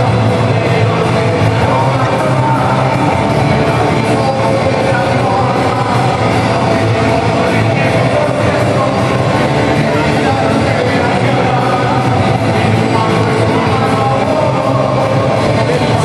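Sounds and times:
live rock music with singing: 0.0s - 16.0s.

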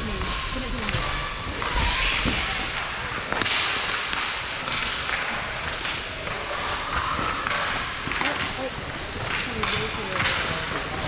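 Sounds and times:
sharp crack: 0.0s - 11.0s
skate blades scraping ice: 0.0s - 11.0s
sticks hitting puck: 0.2s - 11.0s.

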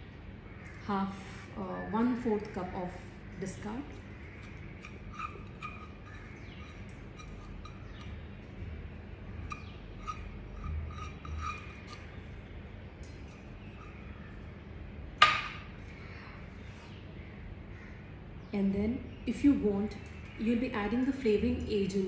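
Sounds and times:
spatula scraping metal cup: 4.3s - 8.3s, 9.4s - 12.2s, 13.2s - 14.2s.

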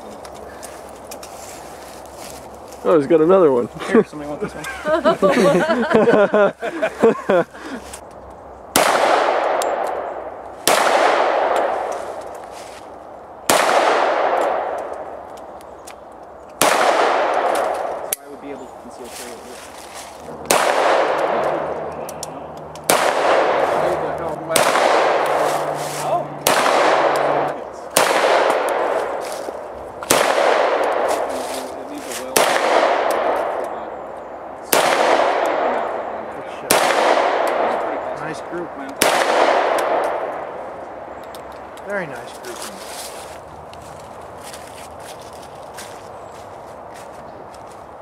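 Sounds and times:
pistol shots with echo: 8.7s - 11.9s, 13.5s - 15.3s, 16.6s - 18.1s, 20.4s - 21.8s, 22.8s - 25.6s, 26.4s - 29.2s, 30.0s - 31.4s, 32.3s - 33.9s, 34.7s - 40.5s.

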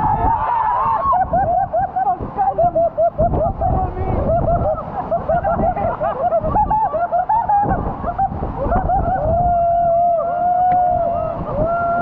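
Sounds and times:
men whooping yell: 0.0s - 2.0s, 8.6s - 12.0s
waterfall rushing: 0.0s - 12.0s
men laughing: 1.0s - 9.6s.

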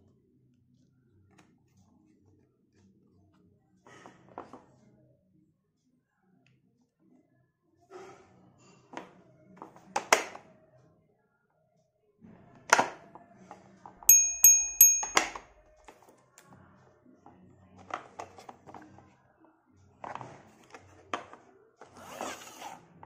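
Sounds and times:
bell-like ring: 14.1s - 15.5s.

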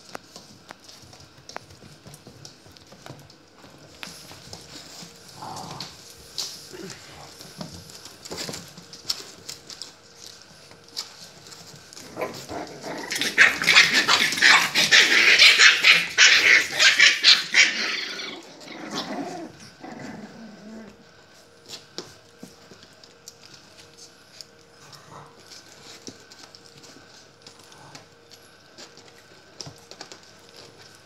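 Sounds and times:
puppies scuffling: 0.0s - 31.0s
puppies barking: 12.0s - 19.6s.

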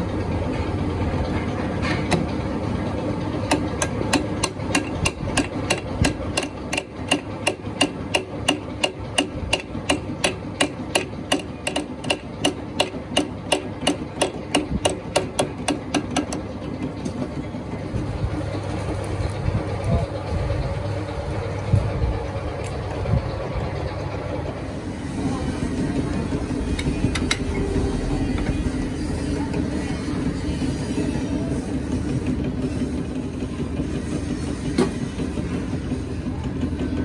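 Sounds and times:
machine drone: 0.0s - 37.0s
hammer striking metal: 3.5s - 16.4s.

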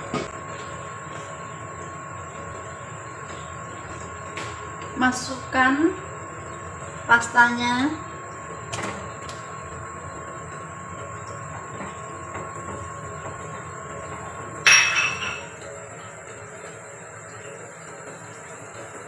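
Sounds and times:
broth boiling and bubbling: 0.0s - 19.0s
ringing clink: 14.7s - 15.5s.

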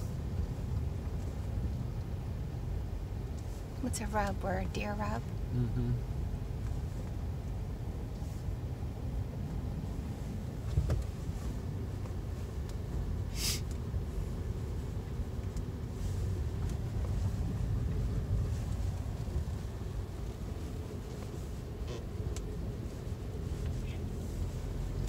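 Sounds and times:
car engine rumble: 0.0s - 25.0s
tyres on snowy road: 0.0s - 25.0s
short hiss: 13.3s - 13.7s.

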